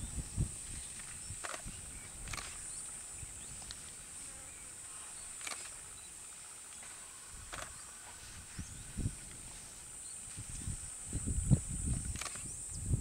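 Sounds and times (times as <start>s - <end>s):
sharp clicks: 1.4s - 2.6s, 5.4s - 5.8s, 12.1s - 12.5s.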